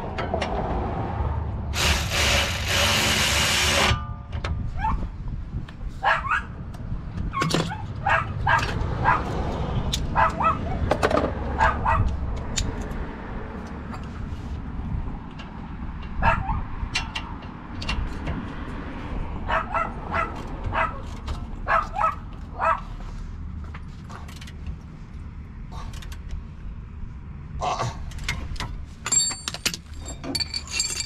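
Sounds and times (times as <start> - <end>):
dog barking: 6.0 - 6.5, 8.0 - 9.3, 10.2 - 10.8, 11.6 - 12.1, 16.2 - 16.6, 19.5 - 21.0, 21.7 - 22.9
metal hand tools clinking: 29.0 - 31.0.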